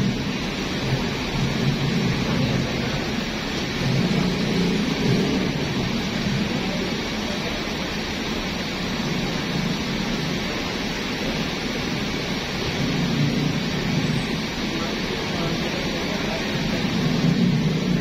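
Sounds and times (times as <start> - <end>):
diesel bus engines rumbling: 0.0 - 18.0.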